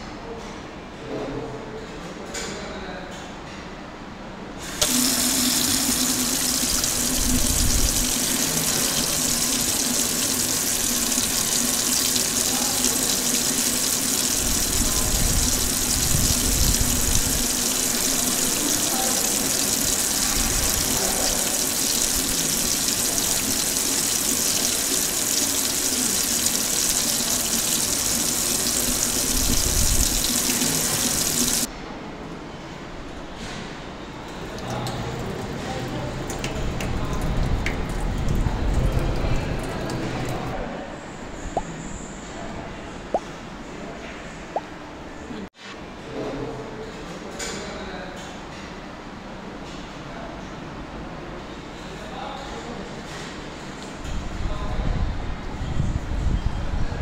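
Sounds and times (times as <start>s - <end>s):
tap water splashing into sink: 4.8s - 31.7s.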